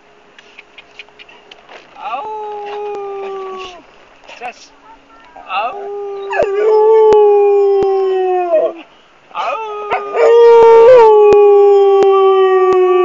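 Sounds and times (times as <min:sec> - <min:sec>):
dog howling: 0:02.2 - 0:03.8, 0:05.5 - 0:08.8, 0:09.4 - 0:13.0.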